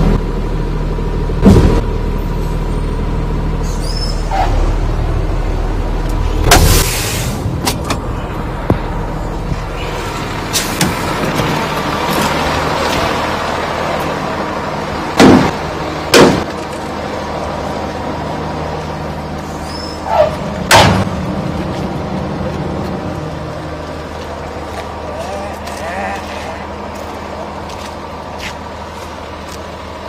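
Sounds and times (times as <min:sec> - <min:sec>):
diesel engine idling: 0:00.0 - 0:30.0
loud short bangs: 0:20.7 - 0:21.1.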